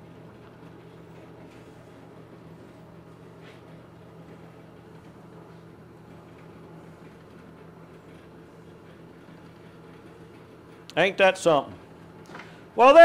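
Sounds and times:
washing machine motor humming: 0.0 - 13.0.

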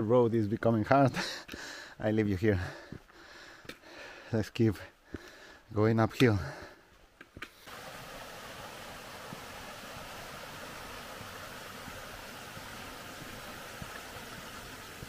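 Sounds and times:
stream running over stones: 7.5 - 15.0.

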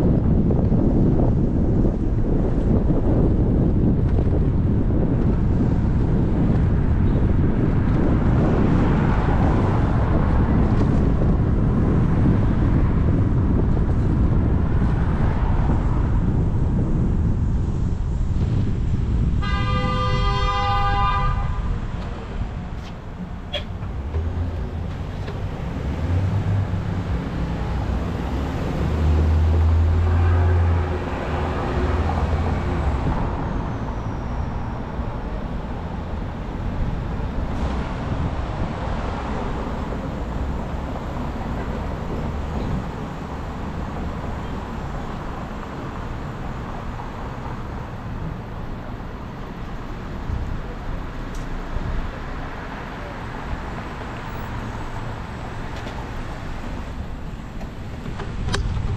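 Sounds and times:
passing cars rumbling: 0.0 - 58.9
loud vehicle passing: 23.4 - 48.5.

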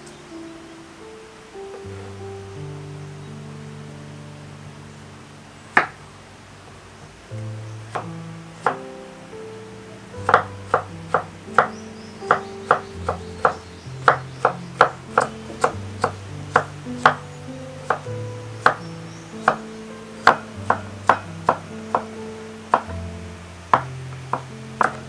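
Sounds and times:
background music low notes: 0.0 - 25.0.

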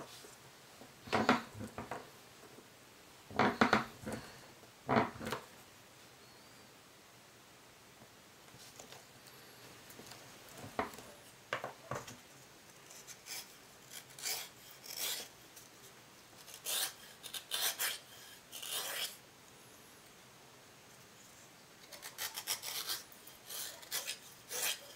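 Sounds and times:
hand tool scraping leather: 16.5 - 18.0, 18.6 - 19.2.

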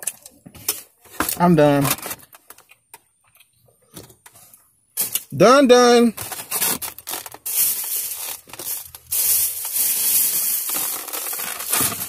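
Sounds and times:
foam container crinkling: 6.1 - 12.0
plastic bag rustling: 6.2 - 12.0.

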